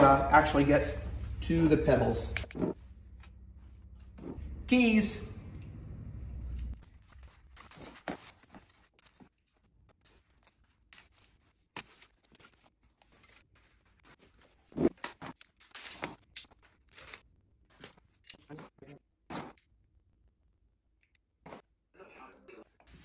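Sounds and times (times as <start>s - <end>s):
packing material rustling: 6.8s - 18.2s.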